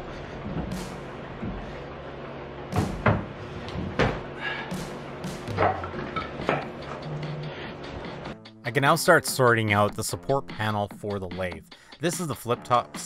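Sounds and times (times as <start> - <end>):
heavy knocks: 2.7 - 6.7
boots thudding on plywood: 2.8 - 4.3.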